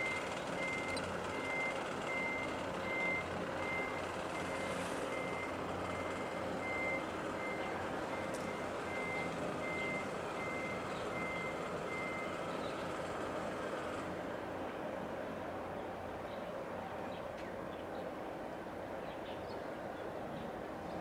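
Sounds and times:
reversing alarm beeping: 0.0s - 12.4s.

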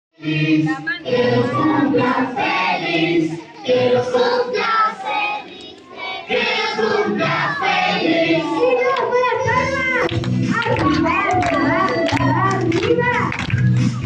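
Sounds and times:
voices singing along: 0.2s - 13.2s
woman singing: 10.6s - 13.4s.

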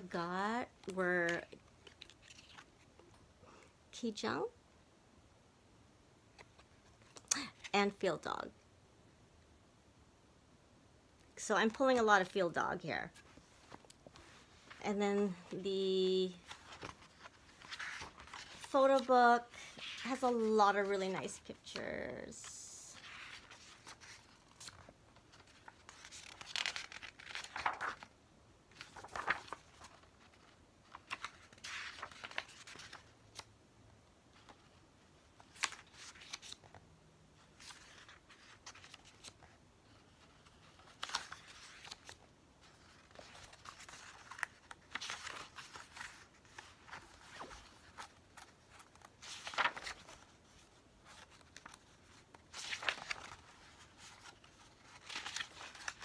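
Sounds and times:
pages turning: 0.8s - 3.1s, 6.3s - 7.7s, 13.1s - 14.9s, 16.3s - 22.0s, 22.9s - 33.5s, 34.4s - 36.8s, 37.4s - 56.0s
faint handling rustle: 13.1s - 21.8s, 28.8s - 33.1s, 37.5s - 56.0s.

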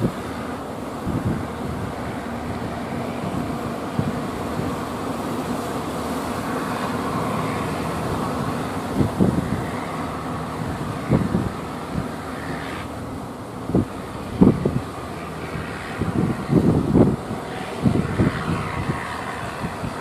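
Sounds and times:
boat engine running: 0.0s - 20.0s
breaking waves: 0.0s - 20.0s
water rushing along hull: 0.0s - 20.0s
wind thumps on microphone: 8.4s - 13.0s, 13.6s - 20.0s.

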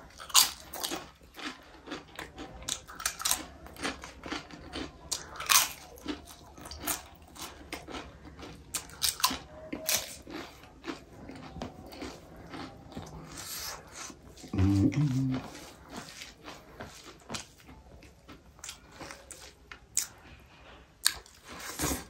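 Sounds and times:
crunching and chewing crisp food: 0.0s - 22.0s.

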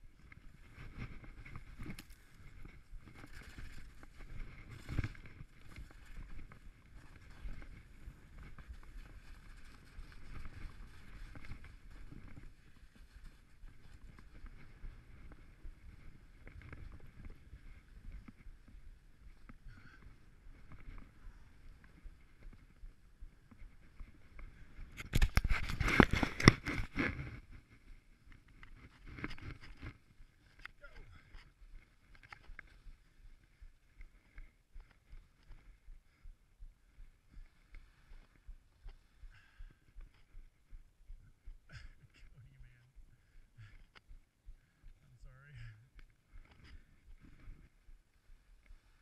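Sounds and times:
skis scraping over snow: 0.5s - 19.2s.

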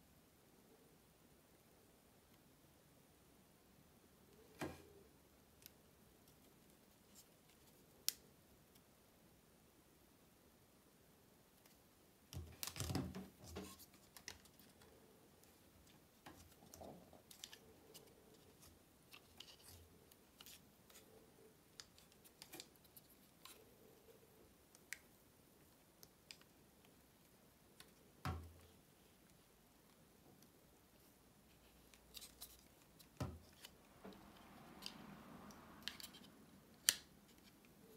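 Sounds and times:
plastic handling clicks and rubs: 11.6s - 24.0s, 24.6s - 37.9s.

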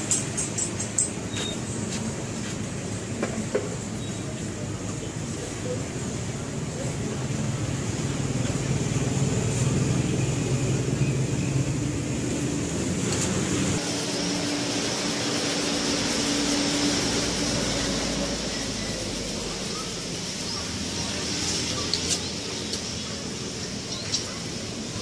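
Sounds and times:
motor engine running: 6.5s - 23.7s.

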